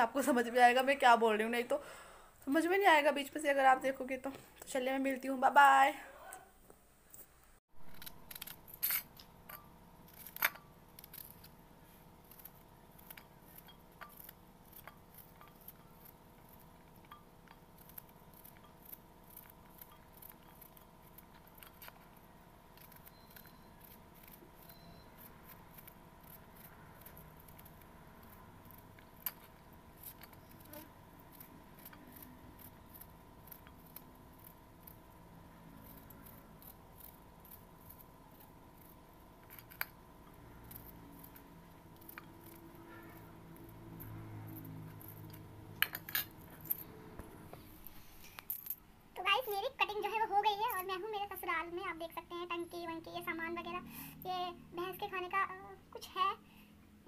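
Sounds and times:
faint steady hum: 0.0s - 57.0s
knife cutting onion: 7.8s - 46.8s.

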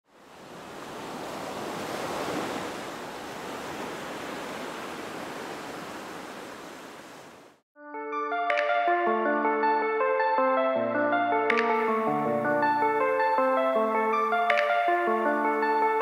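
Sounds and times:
ocean waves washing: 0.0s - 7.6s
music notes: 7.9s - 16.0s.

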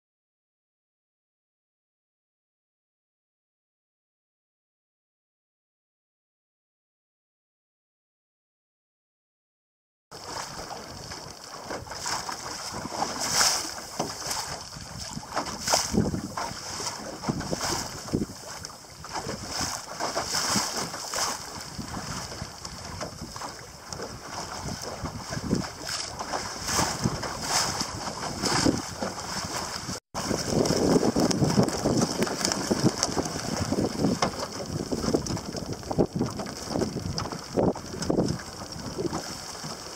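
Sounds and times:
water splashing along boat hull: 10.1s - 39.9s
wind buffeting microphone: 10.3s - 39.9s.

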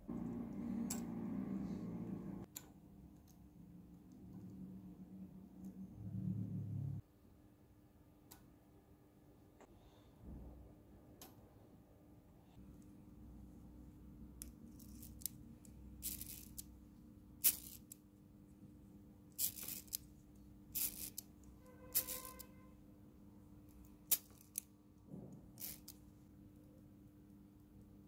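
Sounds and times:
metallic clicks and scrapes: 14.4s - 16.7s, 17.4s - 18.0s, 19.4s - 20.1s, 20.7s - 22.6s, 25.5s - 26.0s.

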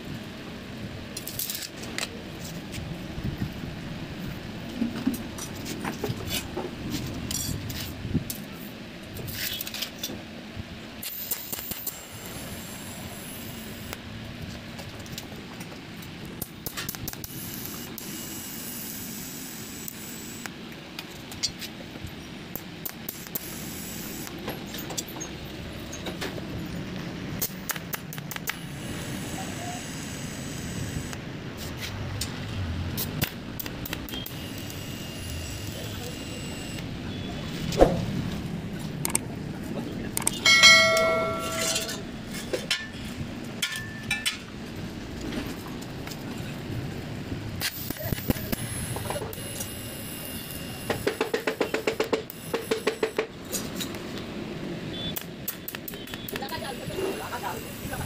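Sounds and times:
welding arc hissing: 11.0s - 14.0s, 16.2s - 20.6s, 22.5s - 24.4s, 27.3s - 36.9s, 47.6s - 54.0s, 55.4s - 58.0s
metal tubes clinking: 40.4s - 43.0s.

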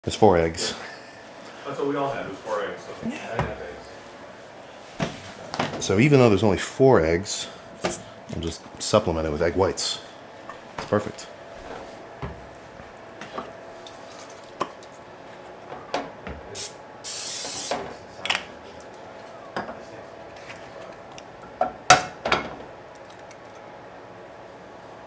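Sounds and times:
cooking spray hiss: 16.5s - 17.9s.

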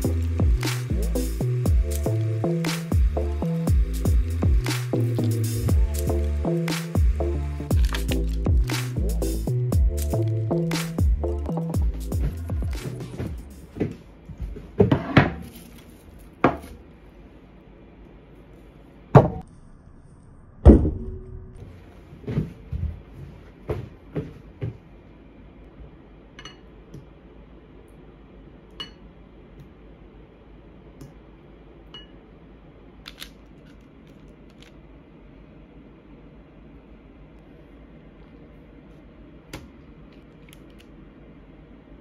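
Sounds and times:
clinks against glass bowl: 26.4s - 26.7s, 28.8s - 29.0s, 32.0s - 32.2s.

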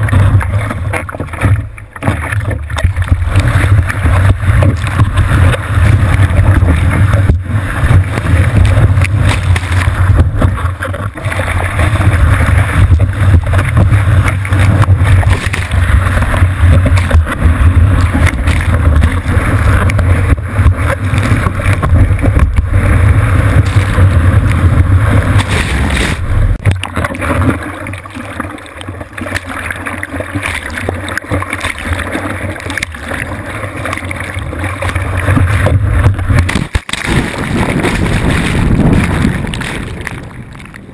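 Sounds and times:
whitewater rushing and splashing: 0.0s - 40.9s
wind buffeting microphone: 2.4s - 26.8s, 34.8s - 40.9s.

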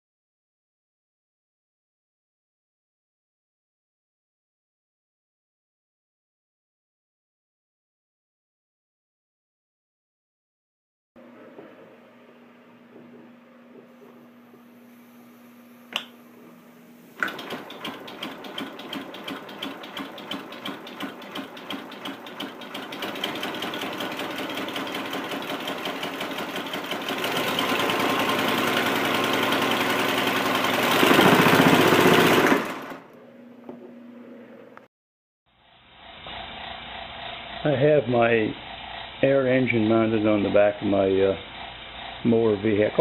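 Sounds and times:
sharp click: 15.9s - 16.2s.

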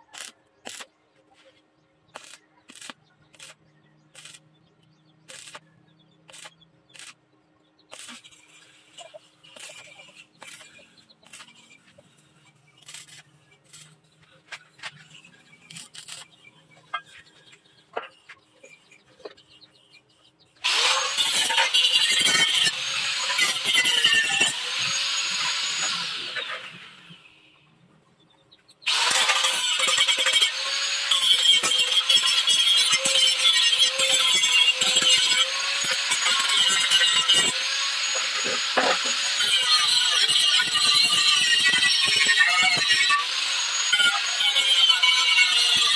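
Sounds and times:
arc welding crackling: 0.0s - 0.9s, 2.1s - 4.5s, 5.3s - 5.7s, 6.3s - 7.2s, 7.9s - 11.6s, 12.8s - 13.8s, 15.7s - 16.2s, 20.7s - 26.3s, 28.9s - 45.9s
angle grinder grinding steel: 2.1s - 19.7s, 20.6s - 27.3s, 28.8s - 45.9s.

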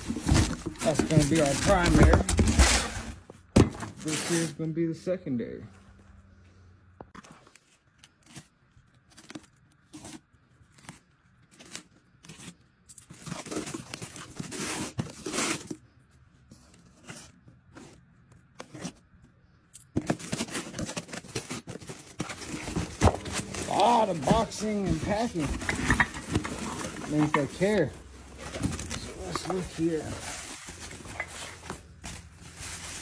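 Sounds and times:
cardboard flaps scraping: 0.0s - 4.5s, 20.2s - 33.0s.

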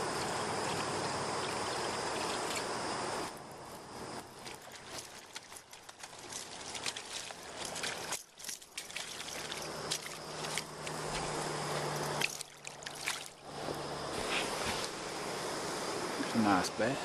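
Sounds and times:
fish splashing in water: 4.2s - 13.6s.

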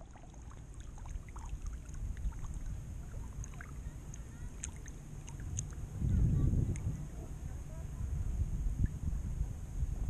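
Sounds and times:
water clicks and drips: 0.0s - 5.8s
seawater lapping and sloshing: 0.0s - 8.2s.

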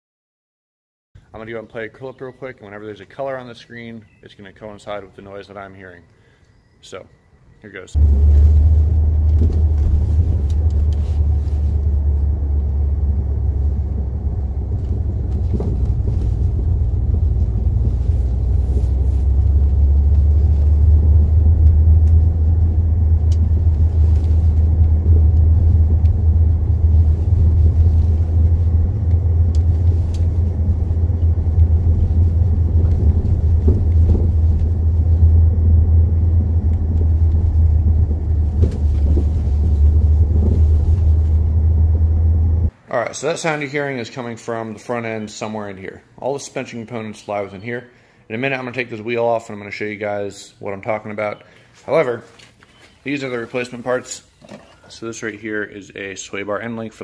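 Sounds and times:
faint clacks from car front end: 8.0s - 22.6s
road and drivetrain rumble: 8.0s - 42.8s.

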